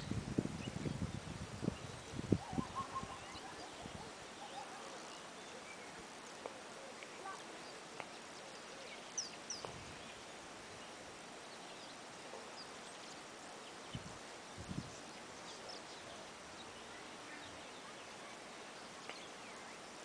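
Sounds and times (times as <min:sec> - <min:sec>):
steady faint hiss: 0:00.0 - 0:20.0.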